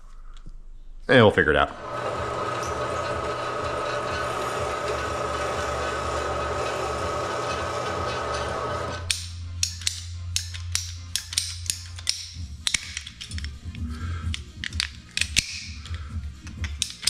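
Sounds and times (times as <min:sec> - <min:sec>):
band saw cutting pipe: 0:01.7 - 0:09.2
ratcheting pipe cutter clicking: 0:07.5 - 0:17.0.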